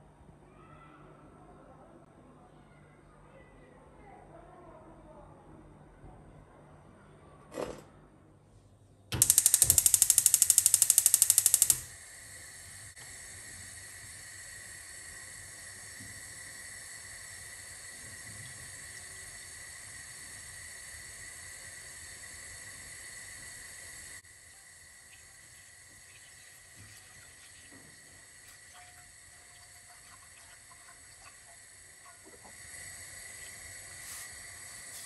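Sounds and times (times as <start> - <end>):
gas igniter clicking rapidly: 9.1 - 12.0
gas burner hissing: 9.1 - 35.0.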